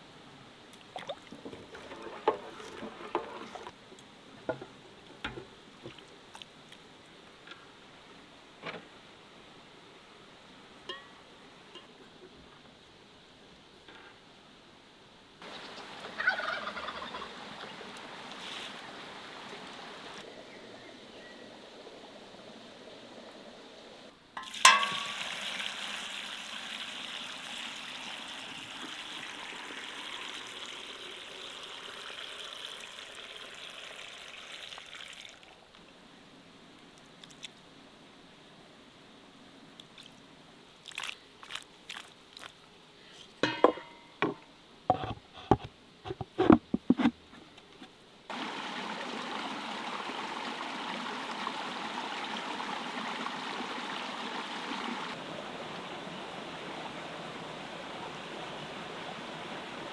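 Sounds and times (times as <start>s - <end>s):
liquid pouring into barrel: 0.9s - 3.7s, 24.4s - 35.6s.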